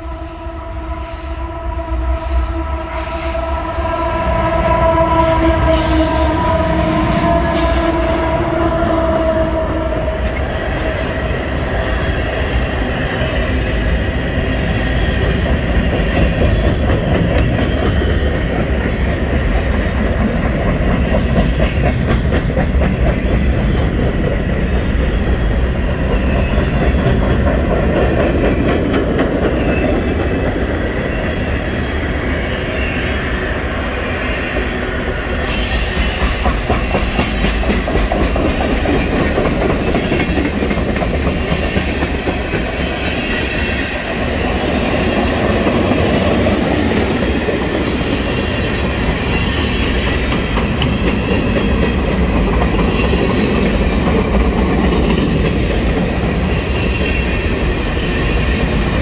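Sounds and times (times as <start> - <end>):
locomotive horn blast: 0.0 - 10.5
freight train wheels rumbling: 0.0 - 59.0.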